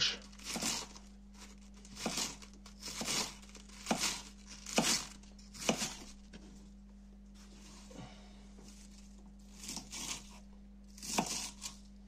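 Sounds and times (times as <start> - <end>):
knife slicing cabbage on board: 0.4 - 1.0, 1.9 - 6.2, 9.5 - 10.4, 11.0 - 11.8.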